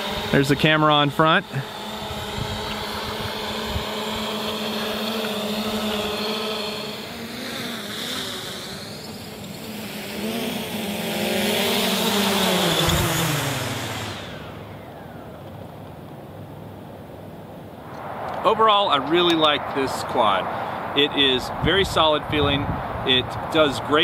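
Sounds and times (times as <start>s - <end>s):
drone motors whirring: 0.0s - 16.2s.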